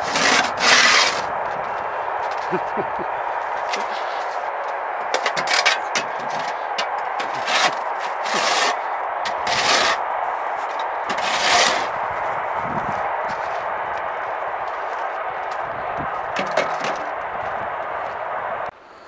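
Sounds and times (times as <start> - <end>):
snow shovel scraping: 0.0 - 1.6, 2.3 - 4.4, 5.1 - 12.0.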